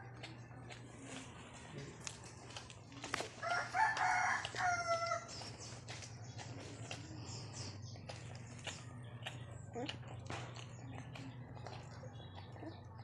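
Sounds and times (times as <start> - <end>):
rooster crowing: 3.4 - 5.3.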